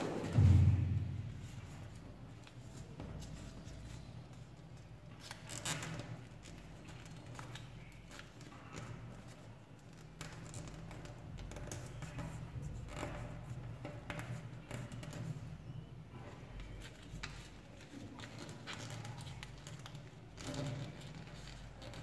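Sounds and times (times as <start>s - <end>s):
steady low hum: 0.0s - 3.0s.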